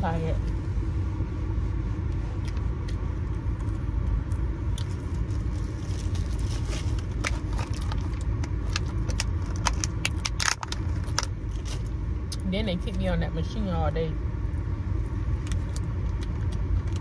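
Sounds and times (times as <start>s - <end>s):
low rumble inside car: 0.0s - 17.0s
plastic snack packaging crackling: 4.8s - 11.8s.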